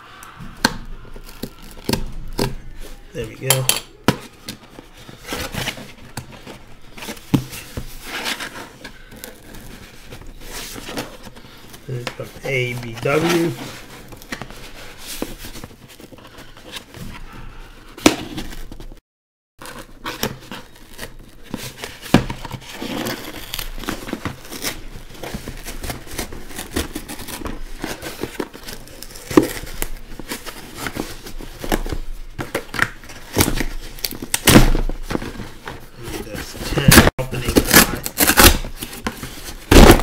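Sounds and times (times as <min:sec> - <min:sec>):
packaging tearing and crinkling: 0:00.9 - 0:03.6, 0:19.6 - 0:40.0.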